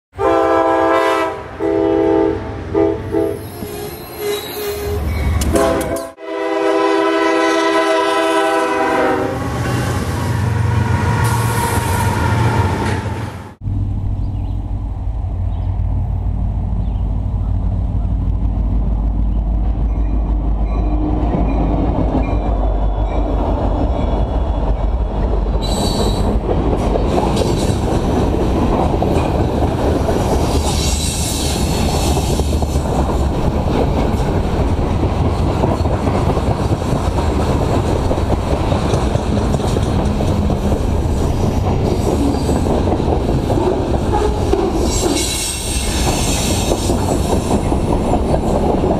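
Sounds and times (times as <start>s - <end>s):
train wheels rumbling on rails: 2.7s - 48.9s
wheel squeal: 3.4s - 5.5s, 25.6s - 26.3s, 44.1s - 47.7s
clickety-clack of rails: 3.8s - 6.2s, 15.1s - 48.9s.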